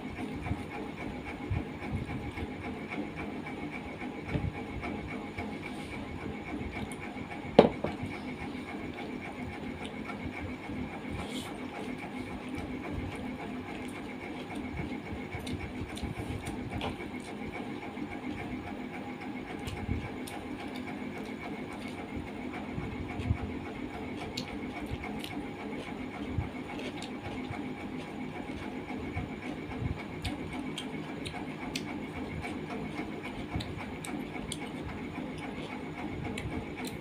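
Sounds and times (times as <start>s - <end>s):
chewing: 8.0s - 10.2s, 13.7s - 18.5s, 24.2s - 28.7s, 30.2s - 37.0s.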